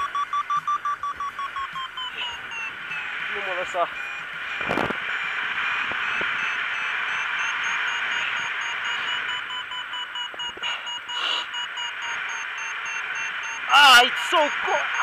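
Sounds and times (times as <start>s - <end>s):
variometer beeping: 0.0s - 15.0s
wind hiss on microphone: 4.6s - 5.1s.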